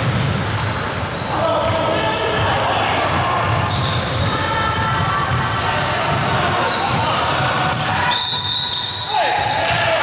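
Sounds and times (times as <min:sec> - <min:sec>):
basketball bouncing on court: 0:00.0 - 0:00.8, 0:01.5 - 0:08.6
sneakers squeaking on floor: 0:00.0 - 0:09.8.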